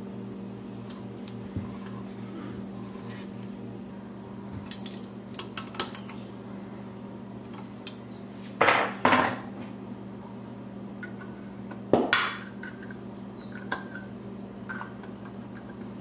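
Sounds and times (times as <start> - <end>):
steady low hum: 0.0 - 16.0
metal tools clinking on bench: 4.7 - 5.1.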